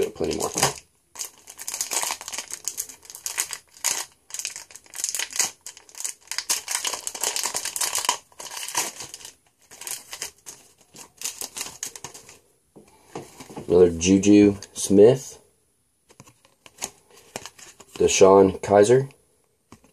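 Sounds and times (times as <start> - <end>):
foil wrapper crinkling and tearing: 0.0 - 12.4.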